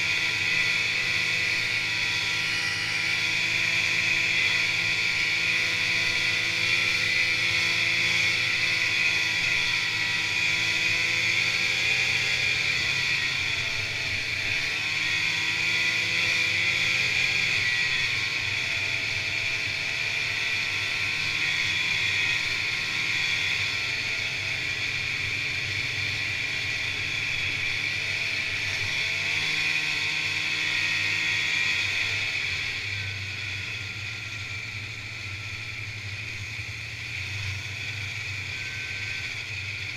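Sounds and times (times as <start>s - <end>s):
snowmobile engine running: 0.0s - 39.9s.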